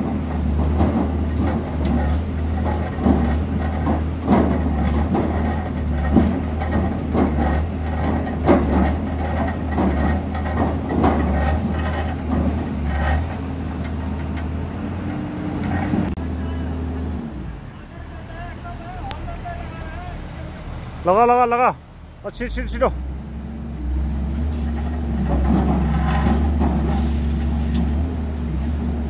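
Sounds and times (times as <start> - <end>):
knocks and clanks: 0.0 - 14.6, 24.3 - 28.9
heavy engine running: 0.0 - 29.0.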